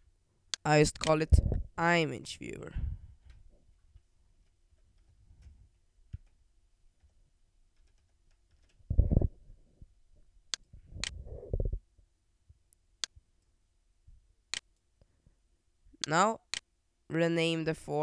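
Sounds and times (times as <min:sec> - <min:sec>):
dull low thuds: 0:01.3 - 0:01.7, 0:08.9 - 0:09.4
keyboard and mouse clicking: 0:07.8 - 0:08.9.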